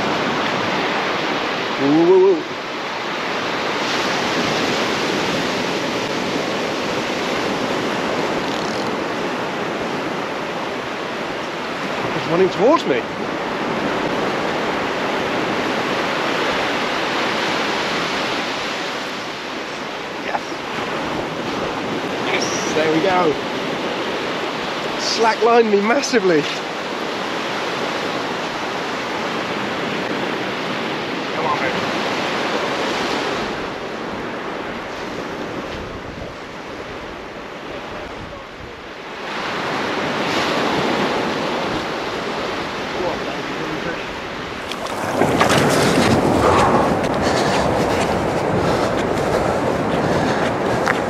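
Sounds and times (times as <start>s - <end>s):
wind on the microphone: 0.0s - 25.5s, 26.4s - 51.0s
surf washing onto beach: 0.0s - 51.0s
waves breaking on the shore: 0.0s - 51.0s.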